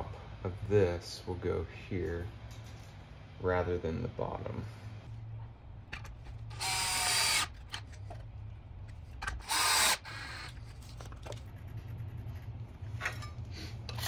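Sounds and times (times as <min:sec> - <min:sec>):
cordless drill motor whine: 0:06.5 - 0:07.8, 0:09.3 - 0:10.6.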